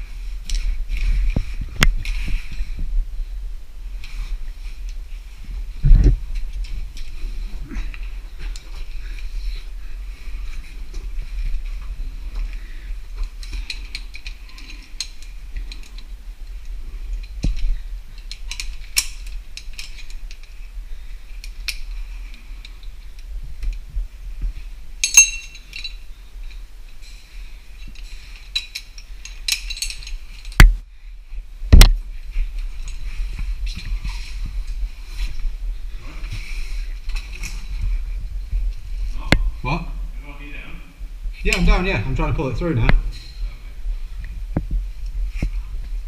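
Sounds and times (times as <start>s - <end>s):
metal climbing gear clinking: 0.0s - 2.8s, 3.9s - 23.8s, 24.5s - 30.6s, 32.2s - 39.1s, 41.4s - 41.9s.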